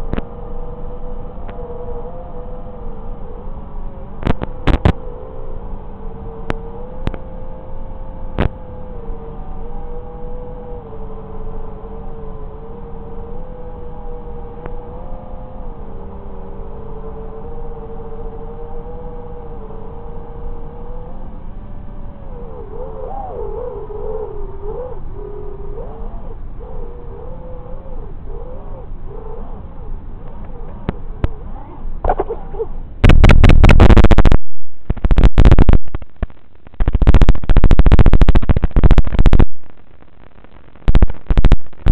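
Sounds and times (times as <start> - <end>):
quiet hiss: 0.0 - 41.9
buzzing static from video receiver: 4.2 - 5.0, 8.3 - 8.6, 33.0 - 41.9
faint tick: 6.5 - 7.2
heavy wind rush: 30.3 - 40.0.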